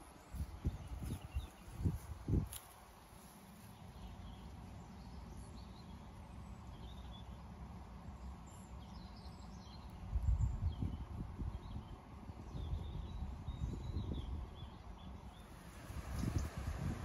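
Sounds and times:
low background rumble: 15.2 - 17.0.

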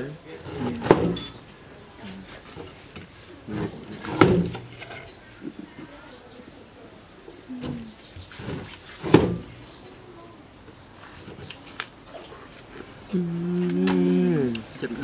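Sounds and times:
person humming: 13.1 - 14.6.

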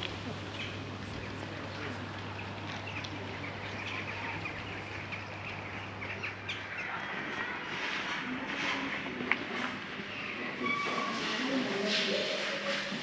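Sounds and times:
small birds chirping: 0.0 - 8.9.

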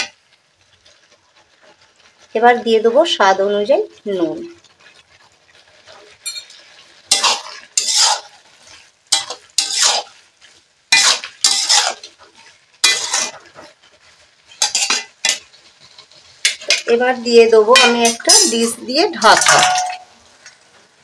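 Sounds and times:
metal spatula scraping metal pan: 4.2 - 20.6.

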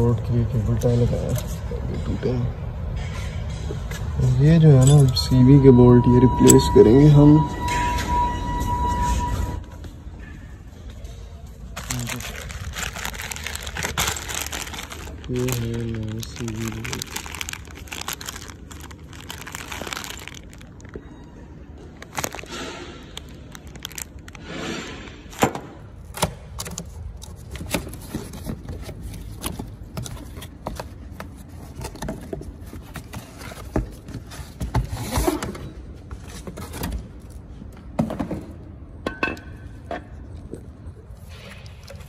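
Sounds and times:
packaging rustling and scraping: 11.6 - 25.4, 26.6 - 37.4
plastic bag crinkling: 11.7 - 21.2, 21.8 - 24.6.

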